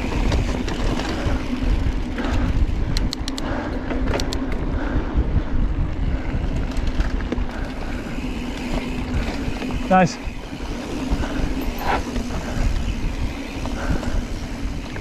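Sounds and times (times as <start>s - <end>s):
sharp clicks and rattles: 0.0s - 4.7s
bike tyres rumbling on trail: 0.0s - 15.0s
wind on microphone: 0.0s - 15.0s.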